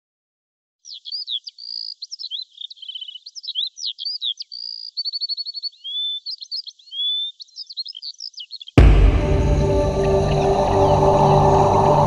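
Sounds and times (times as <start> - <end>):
songbird singing: 0.8 - 8.8.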